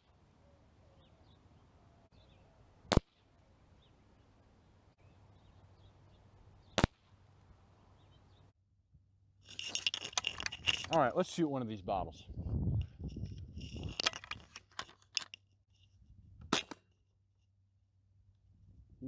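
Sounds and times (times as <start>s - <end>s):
faint bird chirps: 0.4s - 2.7s
wind noise on microphone: 11.7s - 14.6s, 15.9s - 16.6s, 18.5s - 19.0s.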